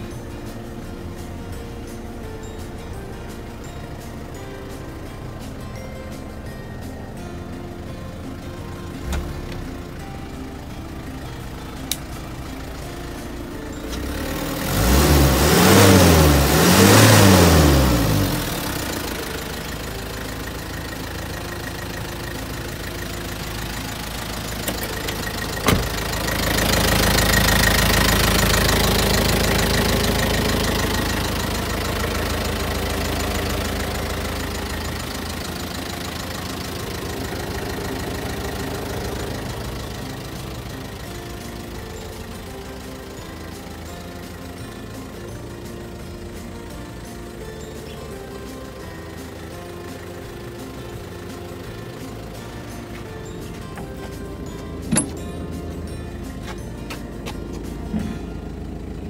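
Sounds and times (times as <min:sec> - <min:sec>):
truck engine revving and idling: 0:00.0 - 0:59.0.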